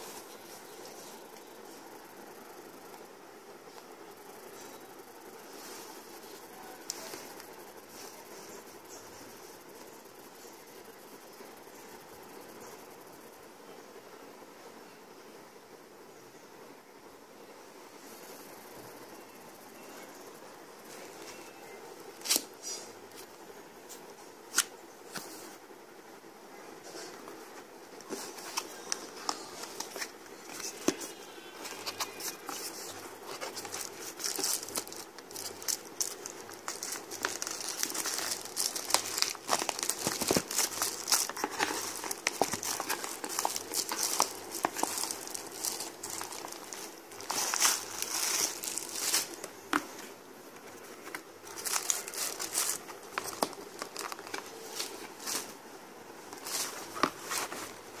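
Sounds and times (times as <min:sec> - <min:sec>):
plastic and cardboard packaging crinkling: 0:27.3 - 0:55.6, 0:56.3 - 0:58.0.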